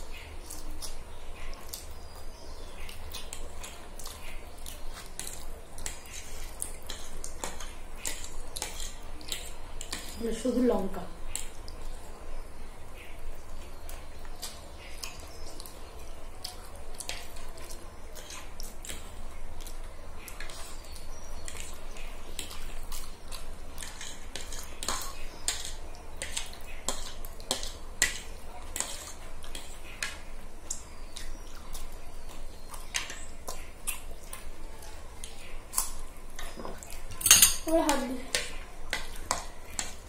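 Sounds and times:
forks clinking and scraping on plates: 0:36.4 - 0:37.8.

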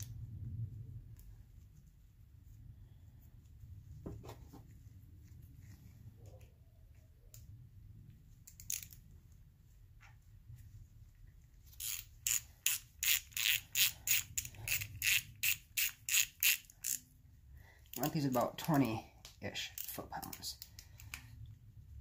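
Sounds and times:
hand ratchet clicking: 0:08.5 - 0:09.0, 0:11.7 - 0:17.1, 0:19.6 - 0:21.2.

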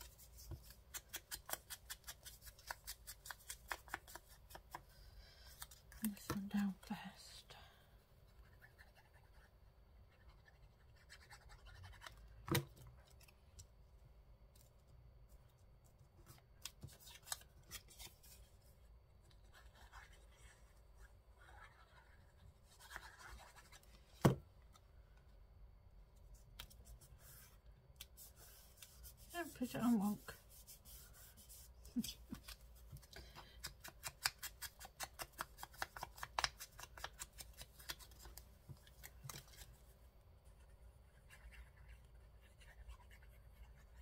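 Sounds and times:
scratching and rubbing on paper: 0:08.3 - 0:12.2, 0:19.4 - 0:23.9, 0:26.7 - 0:33.0, 0:40.4 - 0:44.0.

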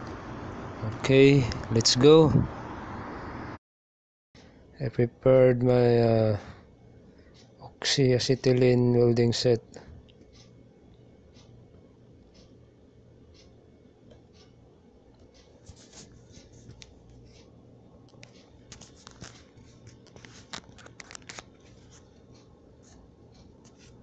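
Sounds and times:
low steady hum: 0:00.0 - 0:03.6, 0:04.4 - 0:24.0
clicks and scrapes of handling: 0:18.2 - 0:22.2.

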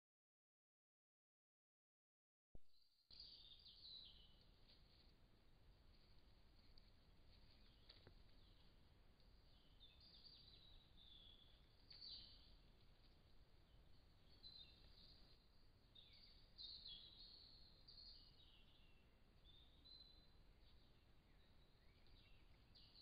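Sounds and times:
bird chirps and twitters: 0:03.1 - 0:04.4, 0:09.4 - 0:12.6, 0:13.6 - 0:23.0.

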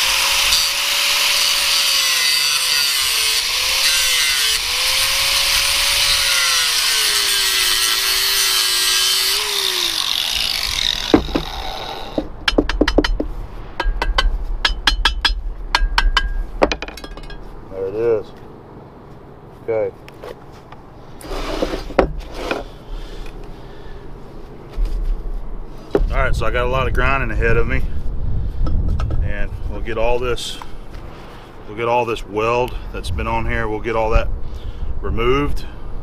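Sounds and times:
angle grinder grinding metal: 0:00.0 - 0:12.4
metallic clinks and knocks: 0:12.4 - 0:17.5.

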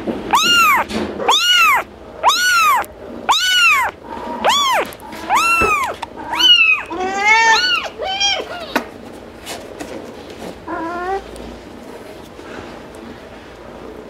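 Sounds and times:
kittens mewing: 0:00.3 - 0:08.9.

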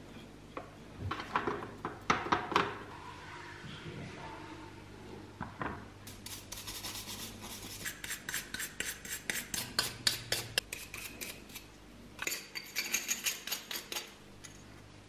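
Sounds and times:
brush scrubbing wet metal: 0:06.1 - 0:11.3.

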